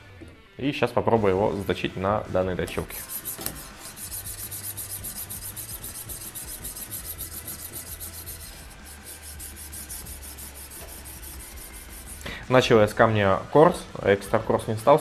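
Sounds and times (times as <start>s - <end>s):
sharpening stone rasping on blade: 2.9s - 12.2s.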